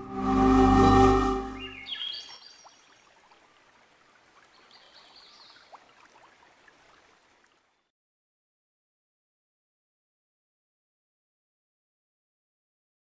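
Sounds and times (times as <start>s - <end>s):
background music: 0.0s - 1.9s
faint stream-like hiss: 0.0s - 7.9s.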